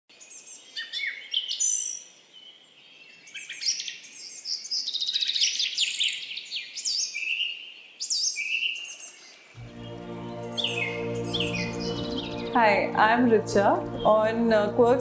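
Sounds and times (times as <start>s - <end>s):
songbirds singing and chirping: 0.1s - 15.0s.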